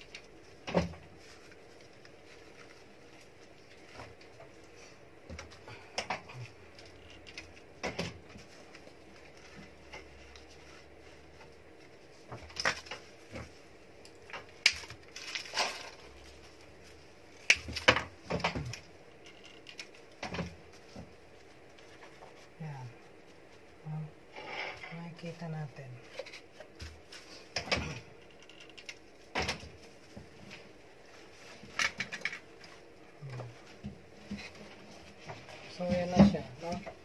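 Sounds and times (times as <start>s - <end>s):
taps scrapes and rustles: 26.1s - 37.0s.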